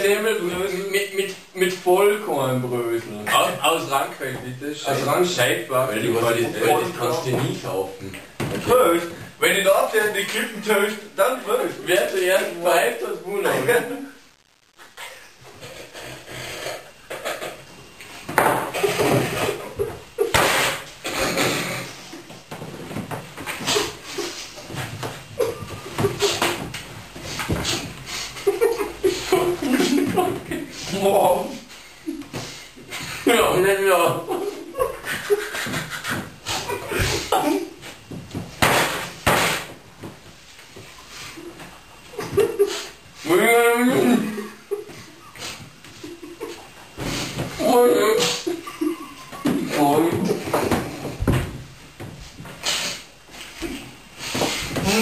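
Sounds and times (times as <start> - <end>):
men puffing and spluttering: 14.5 - 33.4, 34.6 - 39.9, 43.9 - 55.0.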